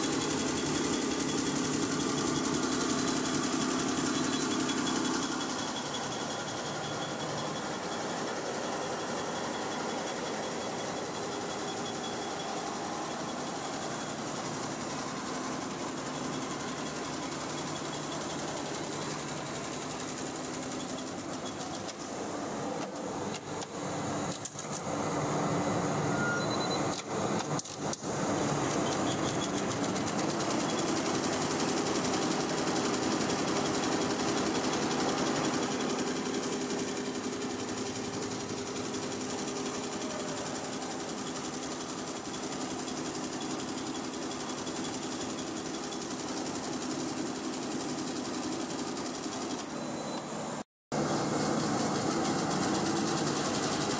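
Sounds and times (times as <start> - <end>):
embroidery machines chattering: 0.1 - 22.0, 28.0 - 46.9.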